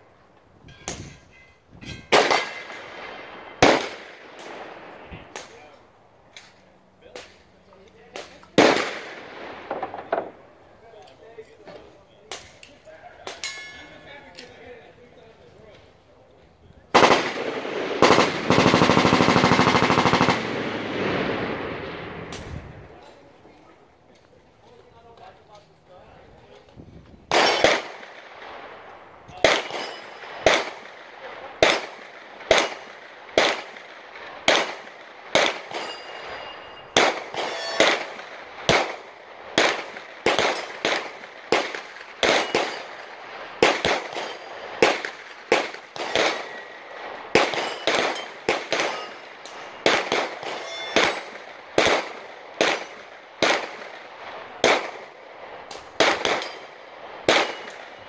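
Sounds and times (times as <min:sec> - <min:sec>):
gunshots: 0:02.1 - 0:05.7, 0:08.2 - 0:10.5, 0:16.9 - 0:22.8, 0:27.3 - 0:58.0.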